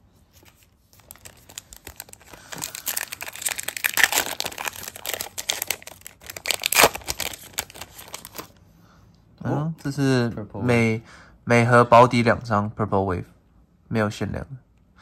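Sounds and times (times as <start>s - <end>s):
foil wrapper crinkling and tearing: 0.5s - 8.6s.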